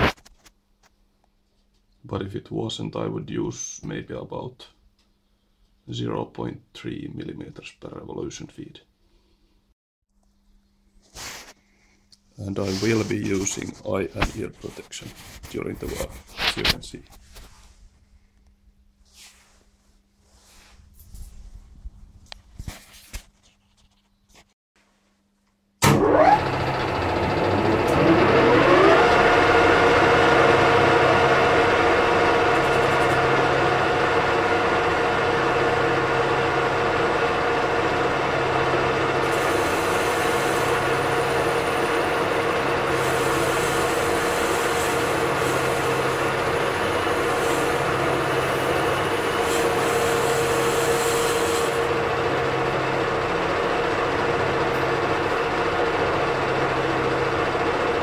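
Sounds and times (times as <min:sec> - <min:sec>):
lathe whine spinning up: 0:25.8 - 0:58.0.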